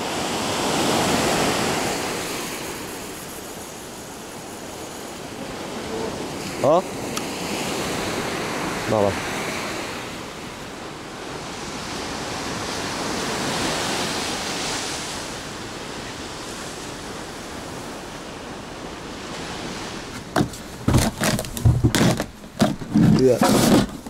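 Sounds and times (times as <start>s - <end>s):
surf washing against rocks: 0.0s - 24.0s
knocks and thumps: 20.2s - 24.0s.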